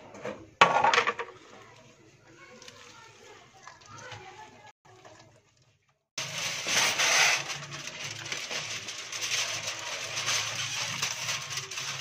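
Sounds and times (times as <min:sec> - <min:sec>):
aluminium foil crinkling: 0:06.2 - 0:12.0.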